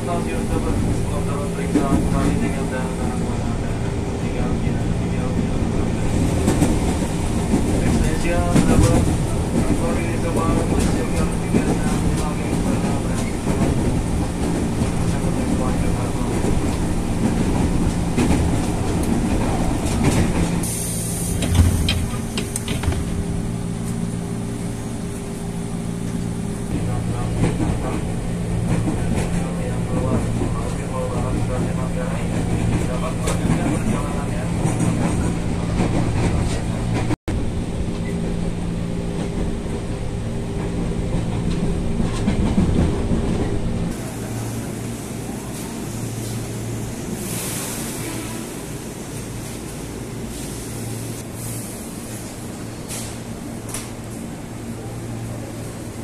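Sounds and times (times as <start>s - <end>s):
train interior hum: 0.0s - 56.0s
knocks and clicks: 21.4s - 23.2s.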